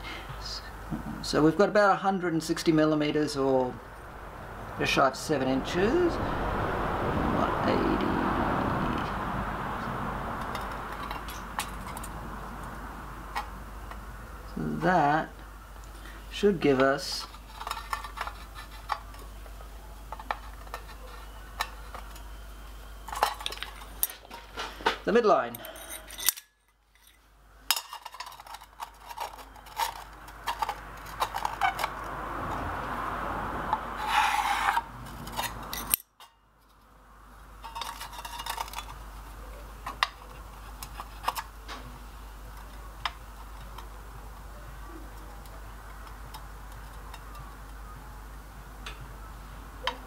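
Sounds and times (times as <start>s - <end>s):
steel tools clinking and scraping: 10.4s - 12.2s, 17.1s - 19.4s, 20.1s - 24.8s, 25.4s - 32.0s, 34.0s - 36.8s, 37.6s - 41.6s, 46.3s - 47.6s.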